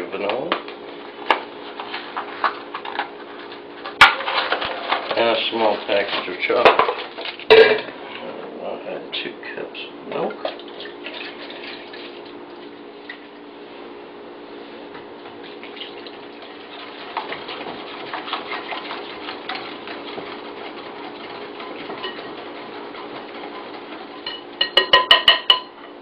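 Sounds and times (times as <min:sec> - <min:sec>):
steady low hum: 0:00.0 - 0:26.0
utensil scraping a bowl: 0:16.6 - 0:24.7
utensil knocking against bowl: 0:24.3 - 0:25.7.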